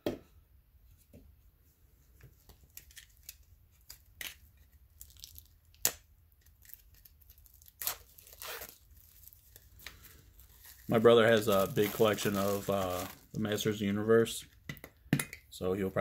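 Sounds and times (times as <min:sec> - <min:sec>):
plastic wrap tearing: 0:02.7 - 0:13.9
plastic shrink-wrap crinkling: 0:02.7 - 0:14.0.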